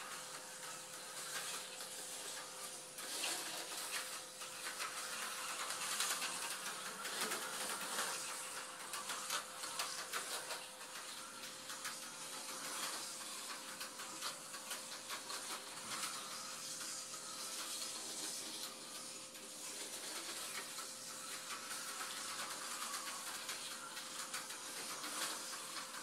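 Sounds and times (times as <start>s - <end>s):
rapid clicking over track joints: 0.0s - 26.0s
slot car motor hiss: 0.0s - 26.0s.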